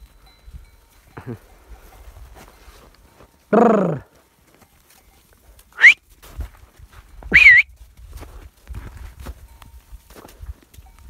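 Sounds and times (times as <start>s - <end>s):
herding whistles: 5.8s - 6.0s, 7.3s - 7.7s.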